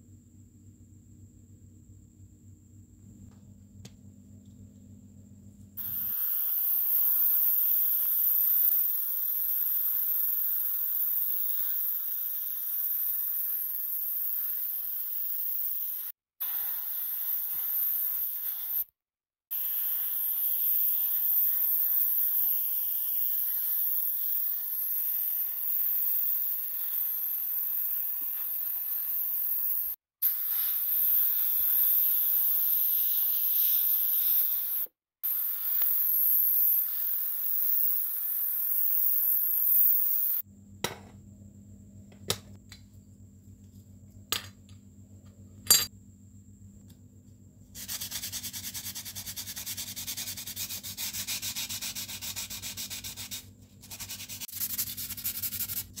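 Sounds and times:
steady high hissing: 5.8 - 18.9, 19.5 - 40.4.

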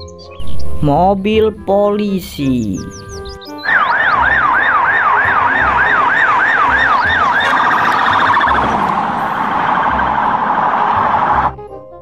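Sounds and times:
police siren yelp and warble: 3.6 - 11.6.

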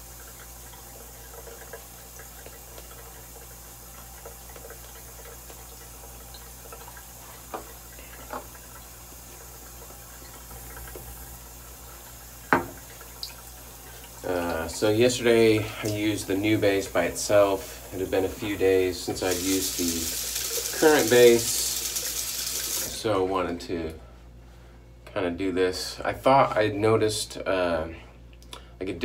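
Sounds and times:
background hiss: 0.0 - 23.1.

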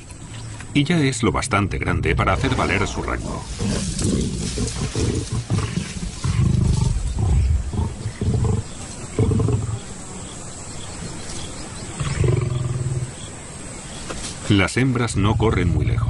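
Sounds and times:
lions snarling and growling: 2.1 - 10.0, 12.0 - 13.3.

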